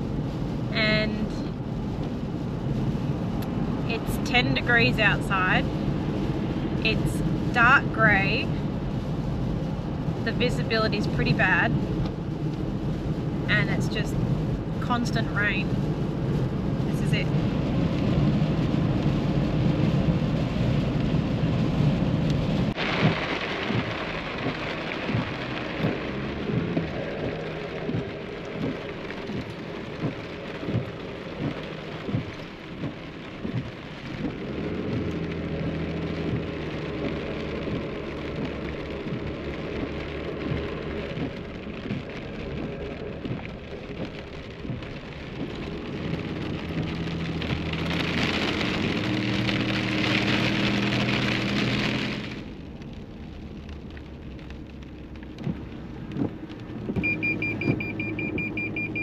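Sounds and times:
car engine hum: 0.0 - 59.0
heavy rain on a car: 0.0 - 59.0
car beeping chime: 57.0 - 59.0.

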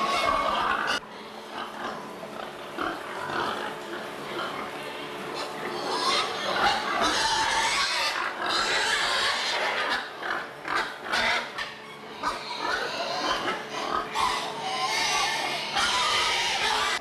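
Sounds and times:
pigs grunting and squealing: 0.0 - 17.0.

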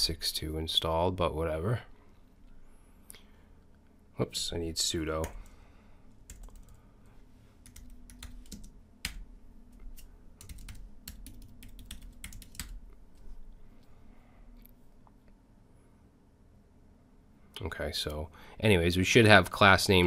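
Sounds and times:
keyboard typing: 6.2 - 6.8, 7.6 - 12.8.

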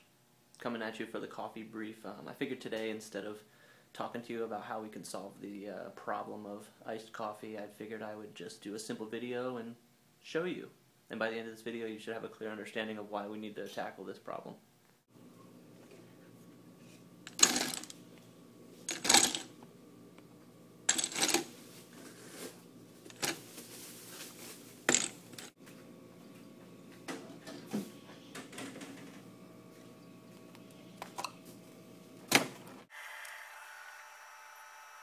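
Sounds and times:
ice cubes clinking into cup: 17.3 - 17.9, 18.9 - 19.5, 20.9 - 21.5.

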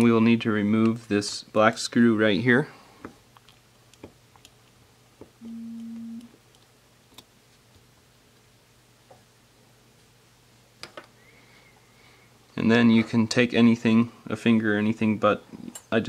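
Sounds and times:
short steady hum: 5.4 - 6.3.

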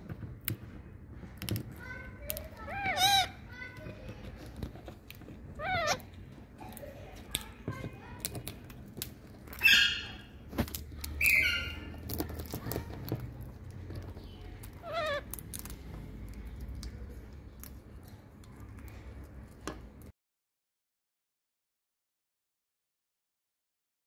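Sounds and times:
parakeets cracking shells: 0.0 - 20.1
parakeet squawks: 2.6 - 3.4, 5.5 - 6.1, 9.6 - 10.4, 11.0 - 12.1, 14.7 - 15.4.

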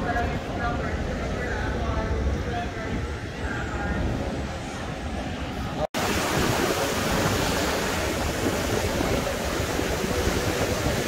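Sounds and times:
wind: 0.0 - 11.0
ocean surf: 5.7 - 11.0.

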